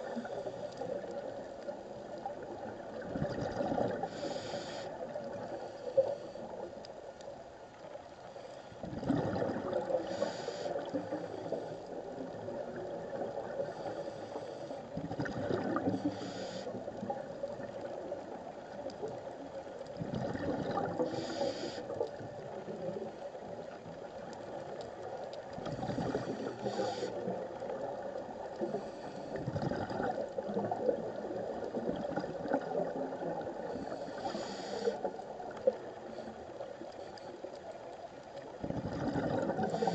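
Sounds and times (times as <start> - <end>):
steady underwater hiss: 0.0 - 39.9
bubbling underwater: 2.6 - 4.1, 8.8 - 10.0, 15.0 - 16.0, 20.0 - 21.2, 25.6 - 26.6, 29.4 - 33.8, 38.6 - 39.9
diver breathing through regulator: 3.8 - 6.7, 9.9 - 11.9, 13.6 - 15.0, 15.6 - 16.9, 20.9 - 22.1, 25.9 - 27.4, 33.6 - 35.2, 39.4 - 39.9.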